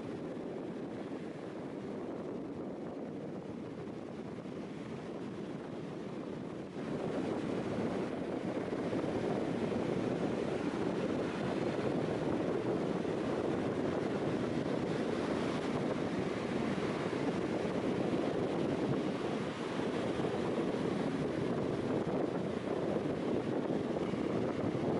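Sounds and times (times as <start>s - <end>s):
surf: 0.0s - 24.9s
wind: 0.0s - 24.9s
wind blowing across microphone: 0.0s - 24.9s.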